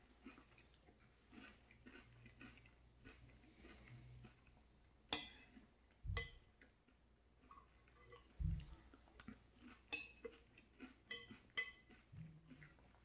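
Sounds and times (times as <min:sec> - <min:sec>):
quiet chewing: 0:00.0 - 0:13.0
dull low thumps: 0:08.4 - 0:08.7
metal spoon clinking bowl: 0:11.1 - 0:11.9.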